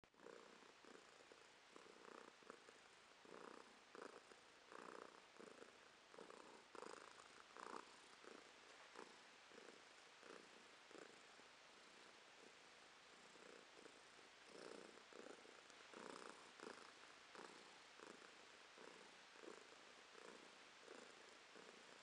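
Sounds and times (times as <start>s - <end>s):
cat purring: 0.1s - 22.0s.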